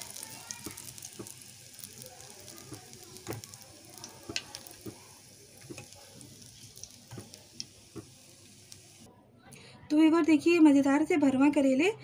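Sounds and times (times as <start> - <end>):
oil sizzling in a pan: 0.0 - 9.1
spoon knocking on pan: 0.6 - 1.4, 4.3 - 6.0, 7.1 - 8.2.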